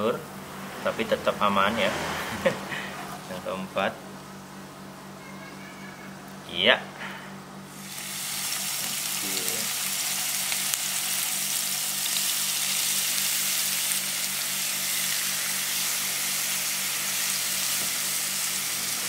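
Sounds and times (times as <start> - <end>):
fish sizzling in a frying pan: 7.7 - 19.0.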